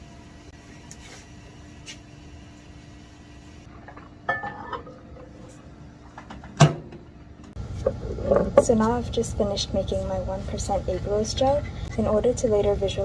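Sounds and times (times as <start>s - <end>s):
steady background hum: 0.0s - 13.0s
glass bottle clinking: 3.8s - 5.3s
microwave door shutting: 6.3s - 7.1s.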